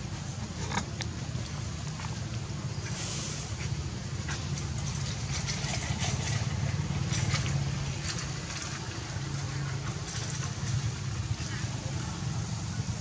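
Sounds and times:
small engine idling: 0.1 - 13.0.

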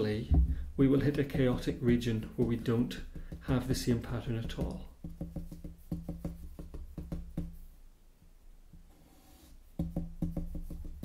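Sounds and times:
marker tapping on paper: 1.3 - 7.6, 9.8 - 11.0.

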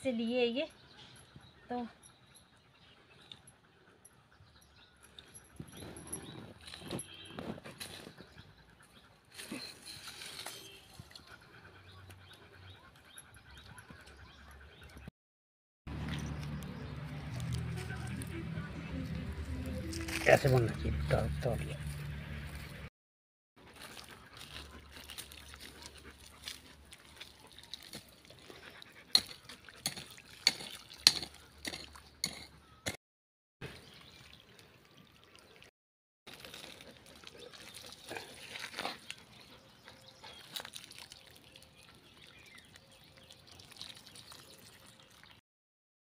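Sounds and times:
trowel scraping gravelly soil: 9.3 - 11.0, 23.7 - 32.6, 36.3 - 41.3
hose water splashing on soil: 23.7 - 28.5, 29.2 - 32.0, 36.3 - 39.3, 40.2 - 45.4.

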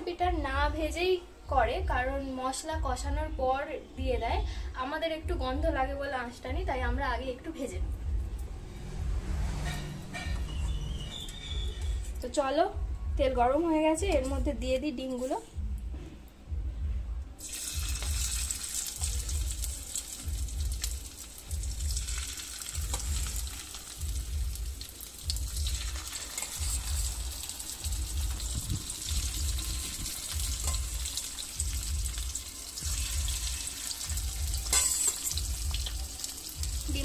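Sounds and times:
food sizzling in hot oil: 17.4 - 37.0.

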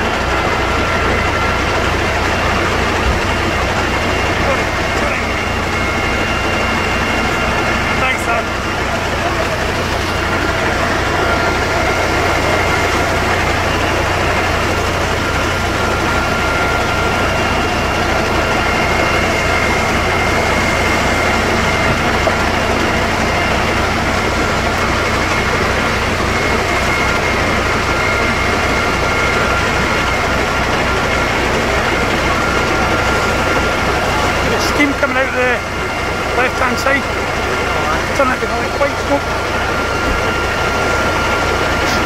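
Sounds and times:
diesel engine throbbing: 0.0 - 42.0
thin steady whine: 0.0 - 42.0.

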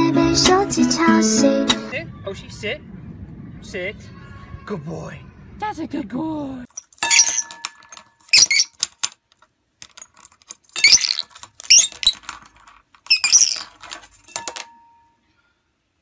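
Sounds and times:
bird chirping squeakily: 6.7 - 9.1, 9.8 - 14.7
plastic peg clattering in metal pot: 6.7 - 14.8.

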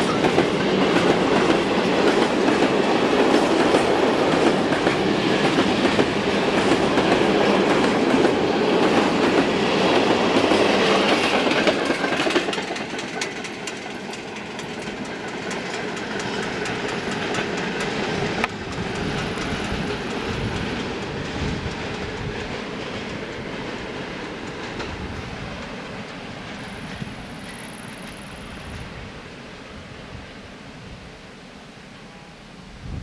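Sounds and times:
train wheels clattering over rail joints: 0.0 - 28.5.

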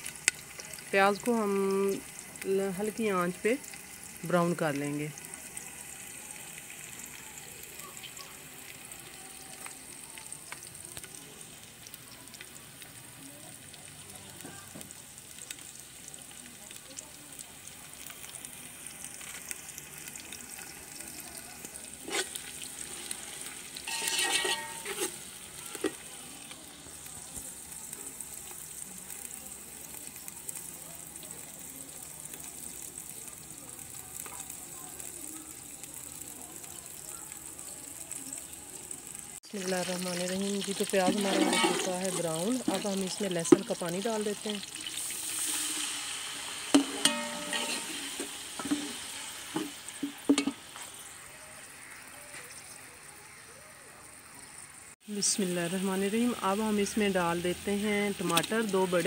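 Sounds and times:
onions sizzling in oil: 0.0 - 59.0
metal spoon clicking and scraping: 23.8 - 26.0, 46.8 - 48.0.

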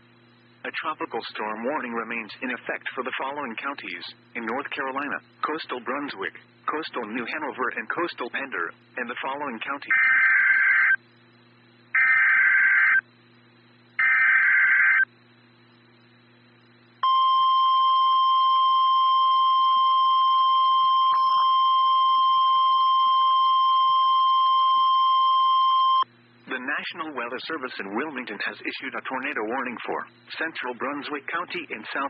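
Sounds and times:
buzzing data bursts: 8.9 - 15.1
steady alarm tone: 9.9 - 11.0, 11.9 - 13.0, 14.0 - 15.1, 17.0 - 26.1.

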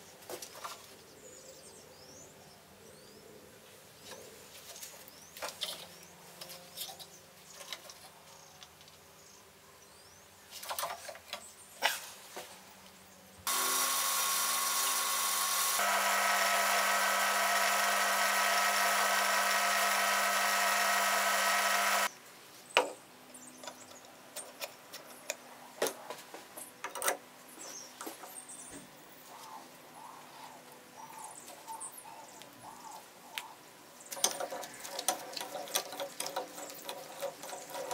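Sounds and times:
pillar drill drilling metal: 13.5 - 22.1
tools clicking and knocking: 34.1 - 37.9.

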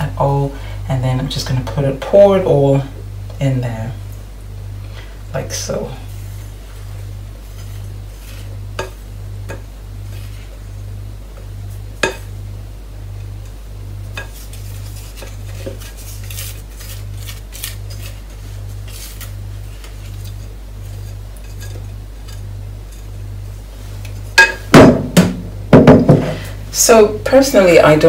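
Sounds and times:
low pulsing hum: 0.0 - 28.0
spatula scraping metal bowl: 20.3 - 23.2.

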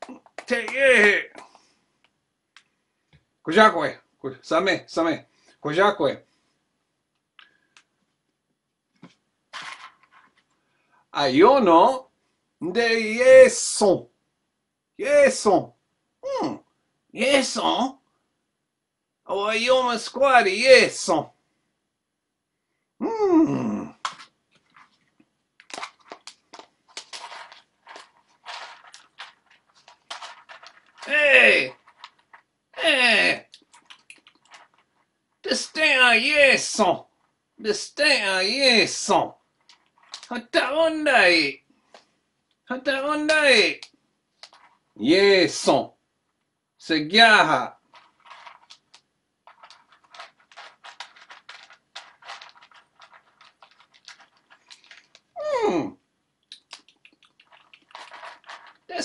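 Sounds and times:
mouth smacking and munching: 33.5 - 34.5, 56.4 - 58.2
munching and crunching: 56.5 - 58.9.

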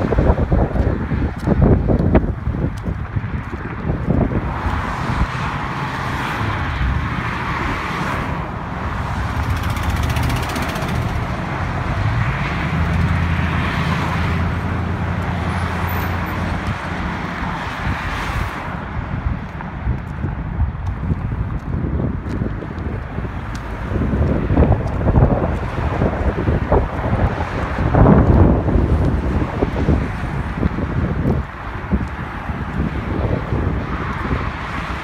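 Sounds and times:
road traffic noise: 0.0 - 35.0.

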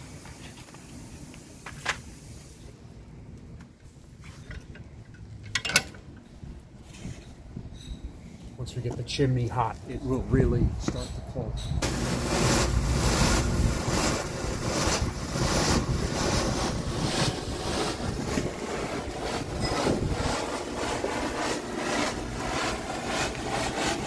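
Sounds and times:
steam hissing from vent valve: 0.0 - 2.8, 11.8 - 24.0.

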